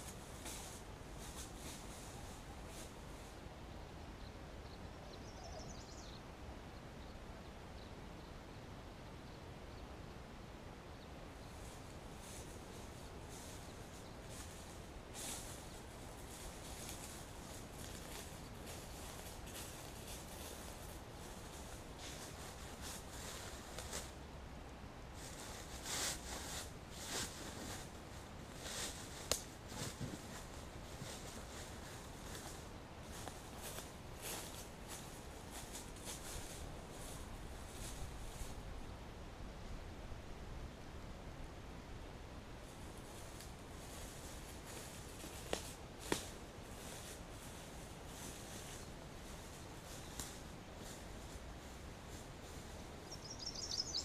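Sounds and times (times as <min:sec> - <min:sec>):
footsteps rustling through grass: 0:00.0 - 0:03.4, 0:11.5 - 0:24.2, 0:25.2 - 0:38.8, 0:42.6 - 0:54.0
low background hiss and rumble: 0:00.0 - 0:54.0
high bird chirps: 0:53.1 - 0:54.0.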